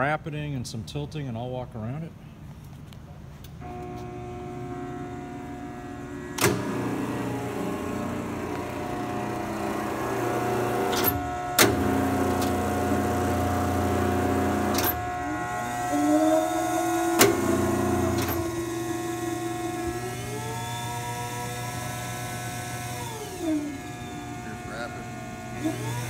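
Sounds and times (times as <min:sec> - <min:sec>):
electric motor humming: 0:03.6 - 0:26.0
motor whine changing pitch: 0:03.6 - 0:26.0.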